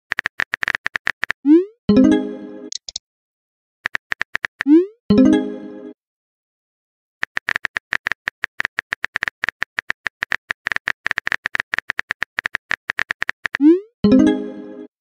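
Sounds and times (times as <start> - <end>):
phone keyboard typing clicks: 2.7 - 3.0, 3.9 - 4.7, 7.2 - 13.6.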